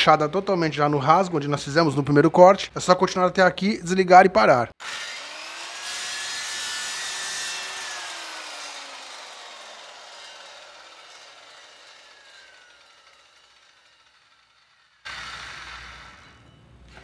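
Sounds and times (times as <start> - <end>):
circular saw winding down: 4.8 - 17.0.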